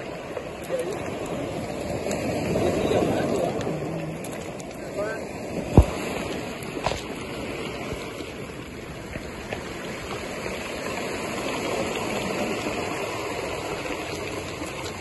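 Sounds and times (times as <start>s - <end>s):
surf washing on rocky shore: 0.0s - 15.0s.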